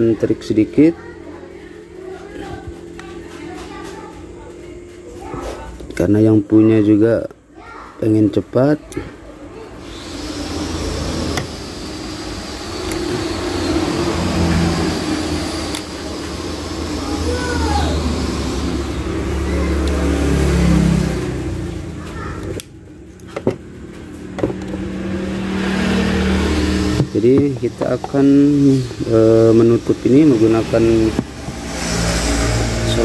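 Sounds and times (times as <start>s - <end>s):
engine rumbling: 9.1s - 33.0s.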